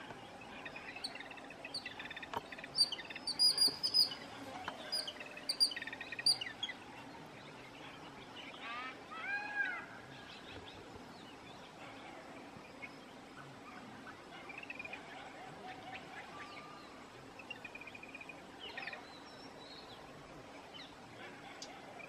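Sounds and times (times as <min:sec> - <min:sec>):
birds chirping: 0:00.0 - 0:09.0
bird arched calls: 0:01.8 - 0:06.7.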